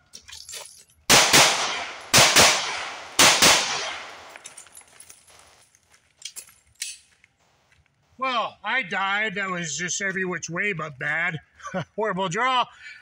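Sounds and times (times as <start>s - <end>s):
pistol shots with echo: 1.1s - 4.4s.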